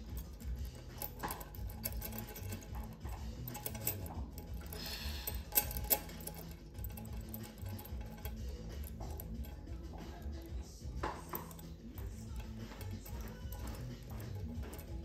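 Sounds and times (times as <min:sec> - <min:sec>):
metal puzzle pieces clicking: 0:00.0 - 0:09.5.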